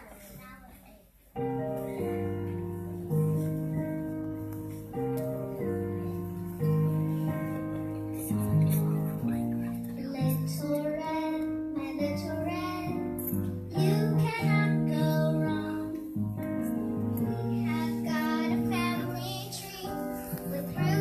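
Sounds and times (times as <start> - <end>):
instrumental backing music: 1.3 - 21.0
child singing: 10.0 - 16.1, 17.2 - 21.0.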